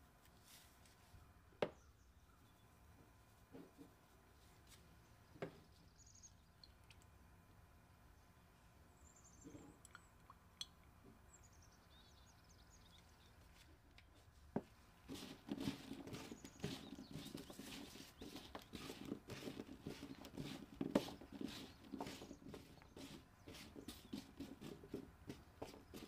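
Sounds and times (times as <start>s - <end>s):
cauliflower rustling on metal tray: 15.0s - 26.0s.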